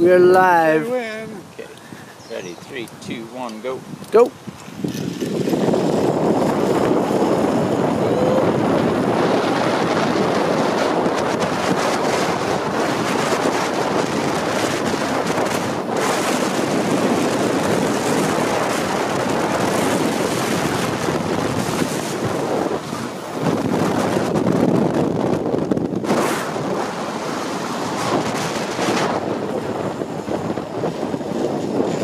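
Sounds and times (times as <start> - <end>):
wind buffeting microphone: 0.0 - 32.0
zipline trolley running on cable: 4.6 - 24.2.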